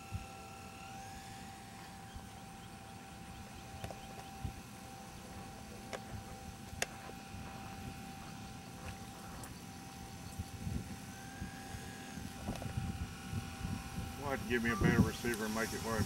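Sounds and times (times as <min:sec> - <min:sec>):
electric motor propeller whine: 0:00.0 - 0:16.0
low wind rumble: 0:05.3 - 0:16.0.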